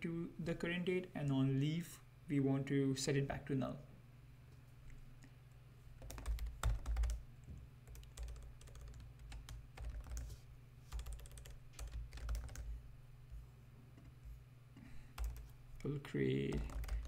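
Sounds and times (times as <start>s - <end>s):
steady low hum: 0.0s - 17.0s
typing on computer keyboard: 6.0s - 7.2s, 7.9s - 10.3s, 10.9s - 12.7s, 15.2s - 15.5s, 16.5s - 17.0s.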